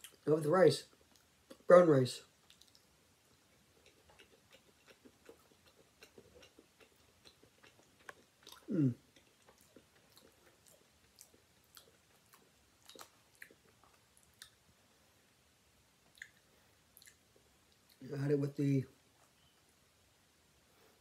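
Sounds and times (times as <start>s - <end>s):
person chewing food: 0.0s - 0.2s, 0.9s - 1.7s, 2.3s - 14.7s, 16.0s - 18.0s.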